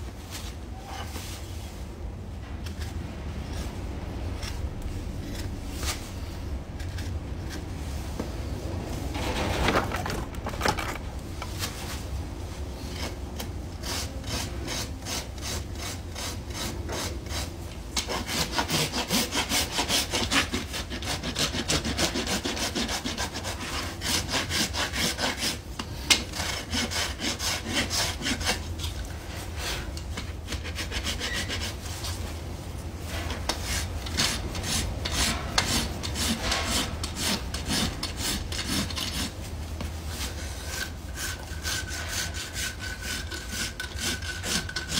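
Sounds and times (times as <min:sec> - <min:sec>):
rasp on horse hoof: 0:09.1 - 0:11.6, 0:12.8 - 0:32.2, 0:33.1 - 0:44.9.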